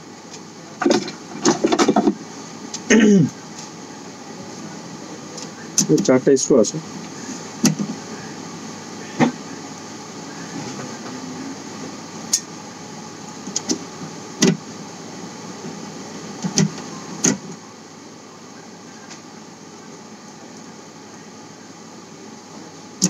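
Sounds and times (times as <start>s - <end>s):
room hum: 0.0s - 23.0s.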